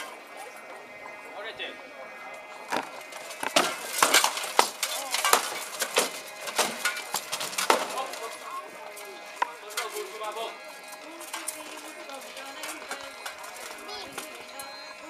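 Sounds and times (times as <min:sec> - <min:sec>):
swords striking shields and armour: 0:02.7 - 0:08.2.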